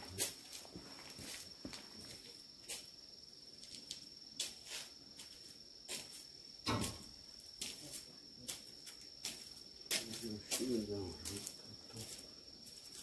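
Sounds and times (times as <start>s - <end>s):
high-pitched insect trill: 0.0s - 13.0s
thump: 6.6s - 7.1s.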